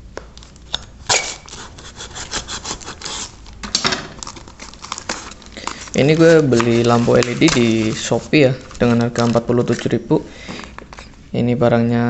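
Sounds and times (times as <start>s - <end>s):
paper wrapping tearing: 0.4s - 10.0s
knife cutting taped paper: 1.0s - 9.9s.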